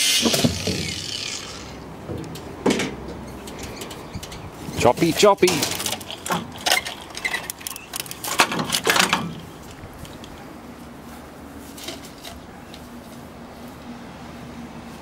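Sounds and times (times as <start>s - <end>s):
metal brackets clattering: 0.2s - 10.4s.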